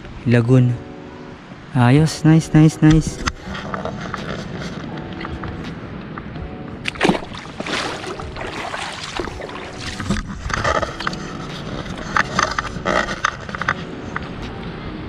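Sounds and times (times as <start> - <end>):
footsteps on rocks: 6.9 - 13.6.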